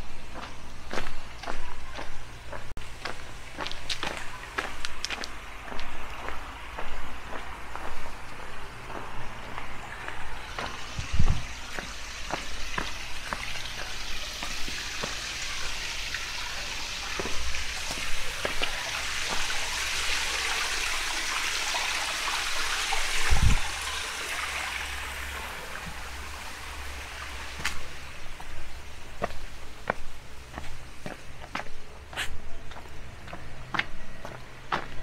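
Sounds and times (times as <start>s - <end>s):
footsteps: 0.0s - 15.8s, 17.0s - 19.7s, 27.5s - 35.0s
flowing water: 0.0s - 35.0s.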